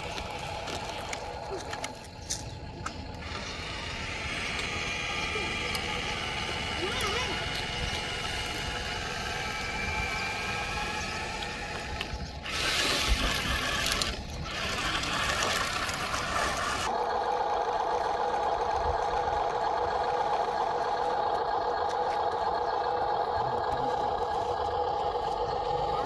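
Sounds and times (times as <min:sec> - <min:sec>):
gravel and dirt rushing: 0:00.0 - 0:17.0
small electric motors whining: 0:00.0 - 0:26.0.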